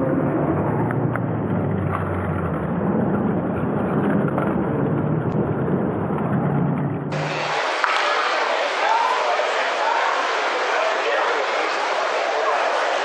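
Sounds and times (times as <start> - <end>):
low hum: 0.0 - 8.2
crowded hall din: 0.0 - 13.0.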